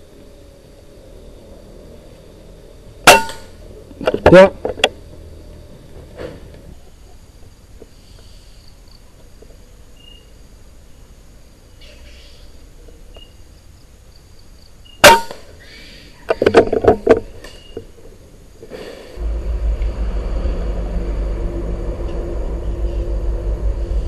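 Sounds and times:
insects chirping: 0:00.0 - 0:24.0
rustling and knocks: 0:16.3 - 0:18.1
low rumble: 0:19.2 - 0:24.0.

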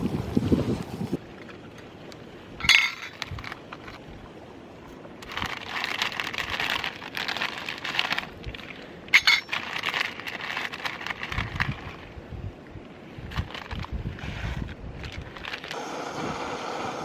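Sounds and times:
metal cookware clinking: 0:02.6 - 0:03.2, 0:09.2 - 0:09.6
packet crinkling: 0:05.2 - 0:12.1, 0:13.3 - 0:14.0, 0:15.0 - 0:15.8.

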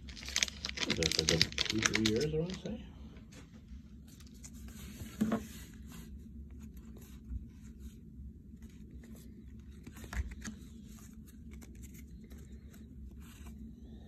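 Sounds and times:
cards rustling and clicking: 0:00.0 - 0:02.8, 0:08.7 - 0:13.6.

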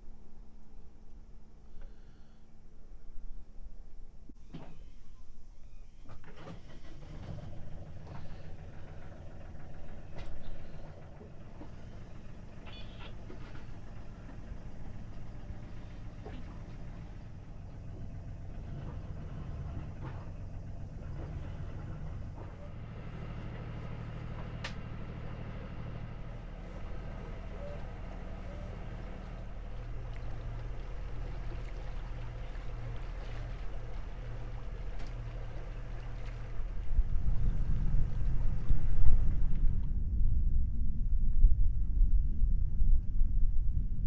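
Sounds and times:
boat engine droning: 0:04.5 - 0:41.2.

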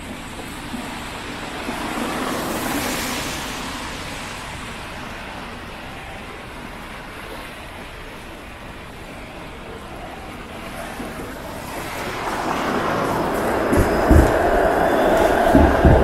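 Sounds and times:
road and wind noise: 0:00.0 - 0:16.0
tyres hissing on wet pavement: 0:00.1 - 0:07.6, 0:10.7 - 0:16.0
vehicle passing on wet road: 0:01.4 - 0:04.8, 0:11.4 - 0:16.0.

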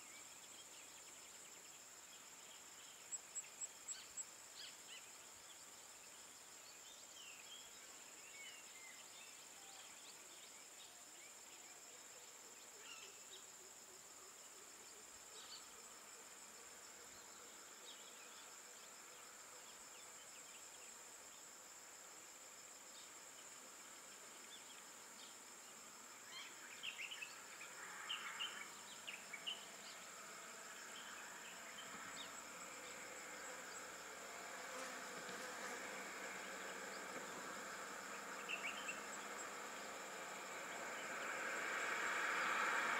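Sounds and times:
insects droning: 0:00.0 - 0:42.9.

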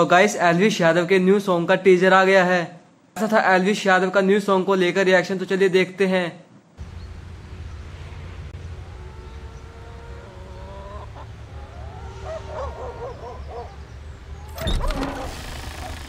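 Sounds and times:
low drone: 0:06.8 - 0:16.0
wavering pitched calls: 0:08.6 - 0:16.0.

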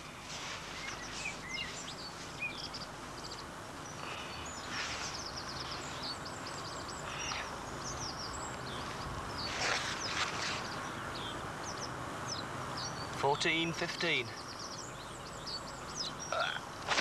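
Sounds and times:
background hiss: 0:00.0 - 0:17.0
songbirds chirping: 0:00.0 - 0:17.0.

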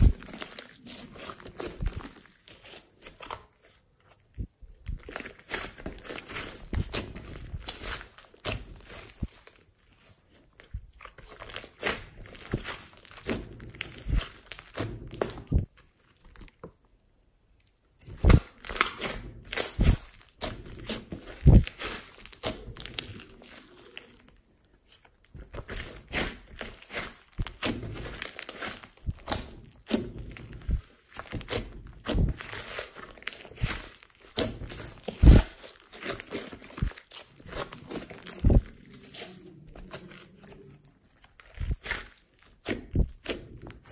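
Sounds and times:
foam beads crunching: 0:25.4 - 0:43.9.

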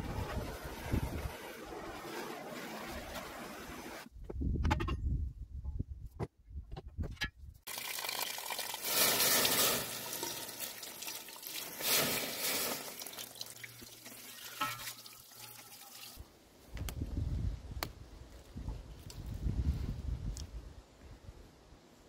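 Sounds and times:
water splashing on hot steel: 0:07.7 - 0:16.2
hot metal steaming: 0:08.8 - 0:13.2.

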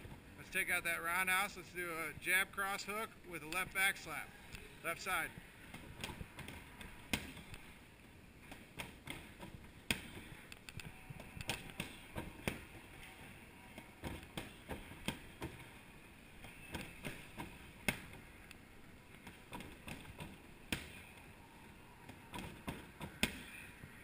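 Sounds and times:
gloves punching heavy bag: 0:05.7 - 0:07.7, 0:08.4 - 0:18.3, 0:19.1 - 0:21.2.

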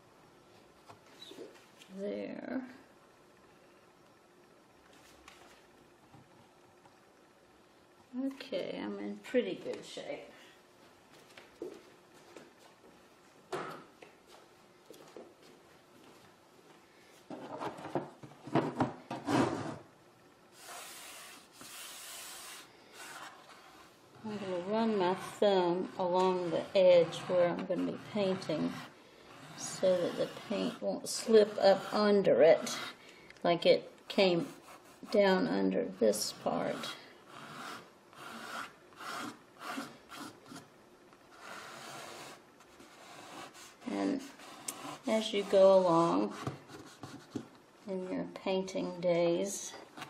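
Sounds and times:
thumb scraping masking tape: 0:37.3 - 0:40.7, 0:44.4 - 0:45.2.

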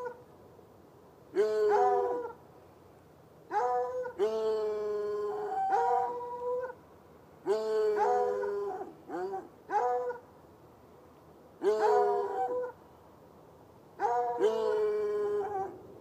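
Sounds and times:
hounds baying: 0:01.4 - 0:02.4, 0:03.5 - 0:04.5, 0:05.3 - 0:06.8, 0:07.5 - 0:10.2, 0:11.6 - 0:12.8, 0:14.0 - 0:15.8.

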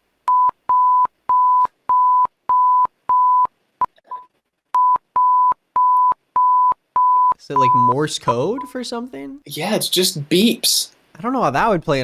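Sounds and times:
steady alert beeps: 0:04.8 - 0:08.8.

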